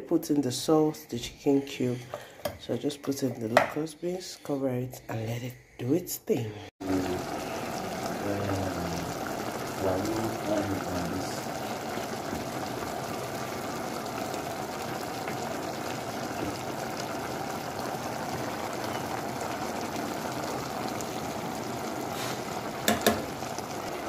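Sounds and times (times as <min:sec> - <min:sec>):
pot of stock boiling: 0:06.8 - 0:24.0.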